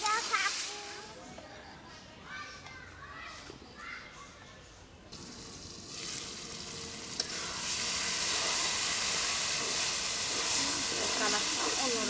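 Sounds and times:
food sizzling in oil: 0.0s - 1.2s, 5.1s - 12.0s.

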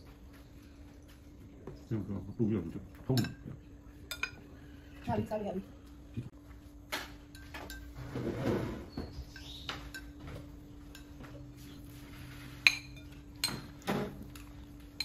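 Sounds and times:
faint steady hum: 0.0s - 15.0s
cutlery clinking on ceramic bowls: 3.0s - 4.5s, 7.2s - 8.1s, 9.2s - 11.5s, 12.5s - 15.0s.

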